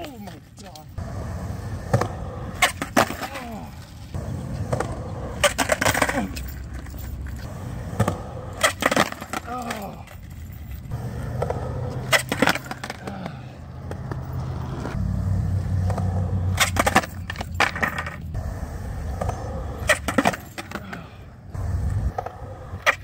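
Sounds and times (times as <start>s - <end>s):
skateboard wheels rolling on concrete: 0.0s - 23.0s
skateboard landing clacks: 1.8s - 3.6s, 4.6s - 6.3s, 7.9s - 10.0s, 11.2s - 14.3s, 15.8s - 18.2s, 19.1s - 21.1s.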